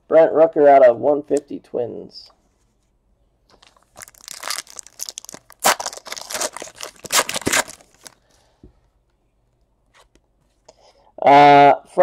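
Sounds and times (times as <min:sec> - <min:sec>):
foil wrapper crinkling: 0:03.6 - 0:08.3.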